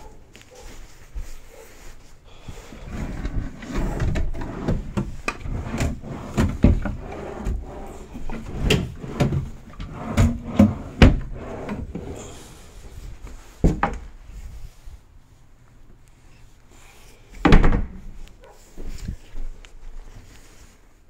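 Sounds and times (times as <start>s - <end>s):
drawers sliding with a rumble: 2.5s - 13.7s
drawers closing with a knock: 3.0s - 12.2s.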